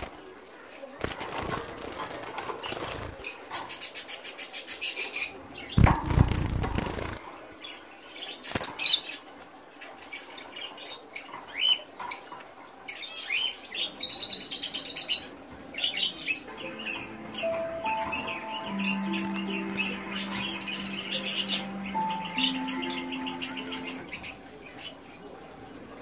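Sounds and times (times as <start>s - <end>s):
finches chirping: 12.9s - 25.0s.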